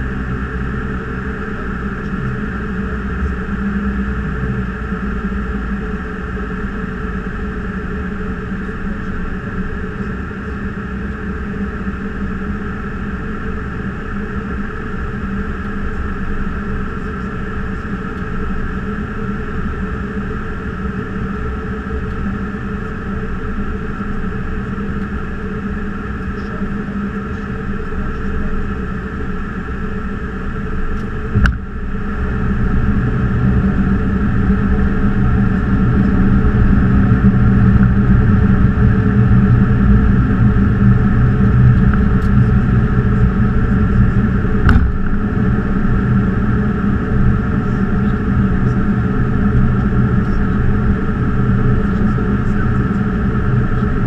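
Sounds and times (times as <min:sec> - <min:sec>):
cockpit air rush and hum: 0:00.0 - 0:54.0.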